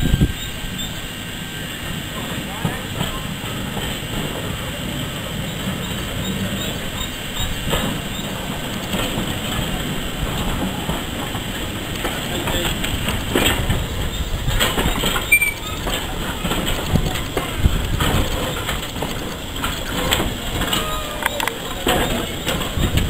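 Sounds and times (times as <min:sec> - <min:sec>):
brief squeak: 0:00.0 - 0:01.1, 0:14.1 - 0:15.9
steam train rumbling past: 0:00.0 - 0:23.0
wheels clanking over rail joints: 0:00.0 - 0:23.0.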